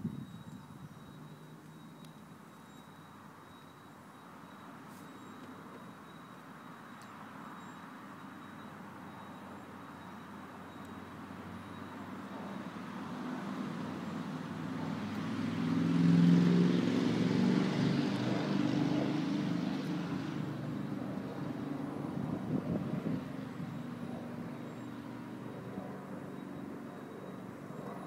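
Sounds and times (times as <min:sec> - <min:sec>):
vehicle passing by: 0:11.4 - 0:28.0.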